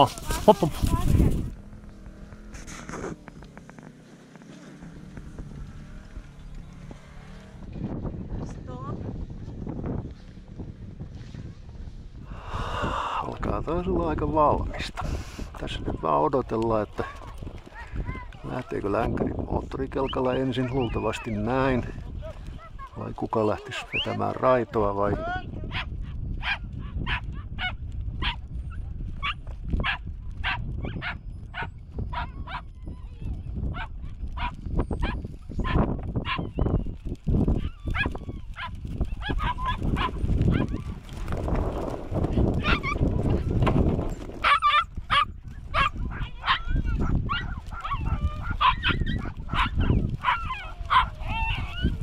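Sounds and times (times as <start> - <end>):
dog yapping: 29.2 - 36.7, 37.6 - 40.9, 44.4 - 52.0.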